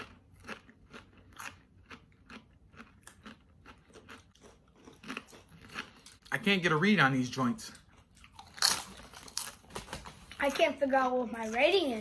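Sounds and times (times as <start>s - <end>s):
chips crunching while chewed: 0.0s - 6.4s, 7.8s - 10.5s.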